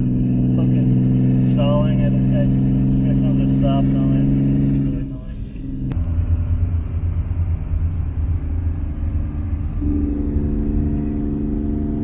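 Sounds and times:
car engine and road rumble: 0:00.0 - 0:12.0
steady drone: 0:00.0 - 0:12.0.

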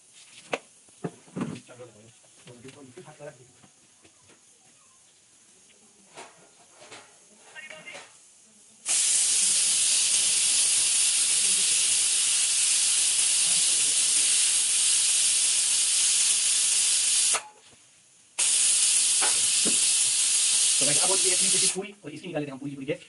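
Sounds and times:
pressure cooker steam hissing: 0:08.8 - 0:17.5, 0:18.4 - 0:21.8.

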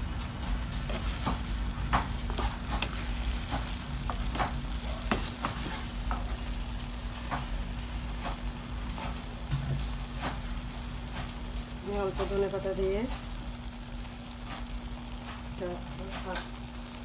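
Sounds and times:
curry sizzling in oil: 0:00.0 - 0:17.0
spatula scraping frying pan: 0:00.8 - 0:06.6.

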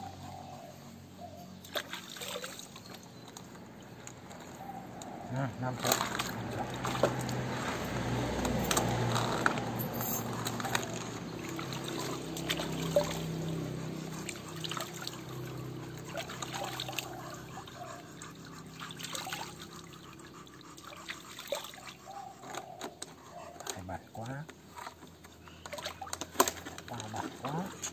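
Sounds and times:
water splashing in a plastic basin: 0:01.6 - 0:04.0, 0:05.6 - 0:09.8, 0:10.5 - 0:17.6, 0:18.8 - 0:20.0, 0:24.7 - 0:27.8.

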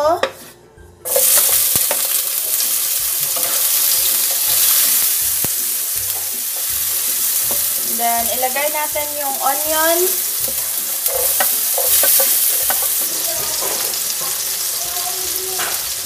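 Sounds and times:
tomatoes sizzling in hot oil: 0:01.0 - 0:16.0
spatula tapping on pan: 0:10.4 - 0:14.5.

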